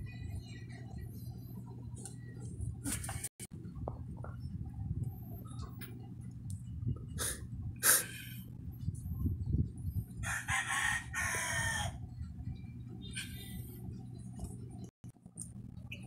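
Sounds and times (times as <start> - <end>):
steady low hum: 0.0 - 16.0
rooster crowing: 10.2 - 12.0.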